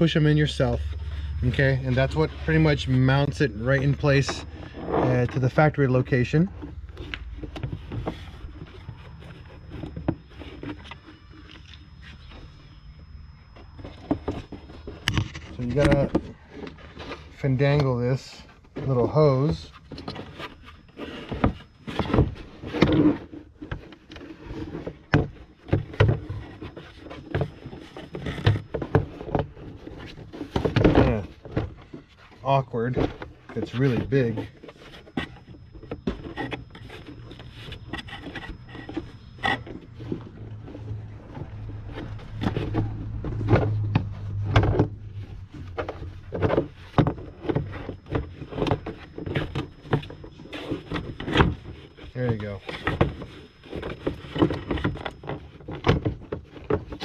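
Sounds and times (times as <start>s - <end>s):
plastic housing knocking and scraping: 0.0s - 57.0s.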